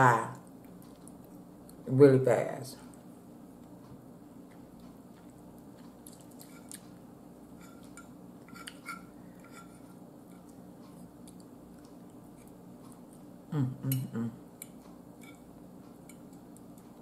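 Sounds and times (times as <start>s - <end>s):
low room hum: 0.0s - 17.0s
fork scraping dinner plate: 7.5s - 10.5s.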